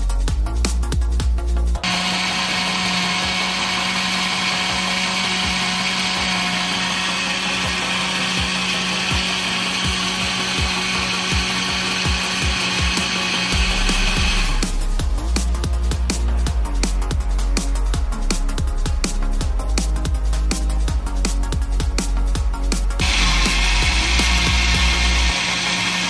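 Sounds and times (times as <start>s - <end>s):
blender motor humming: 1.8s - 14.9s, 23.0s - 26.0s.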